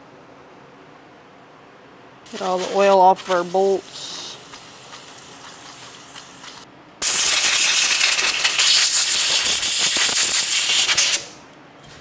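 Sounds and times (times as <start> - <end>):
spray hissing onto metal bolts: 2.3 - 11.2.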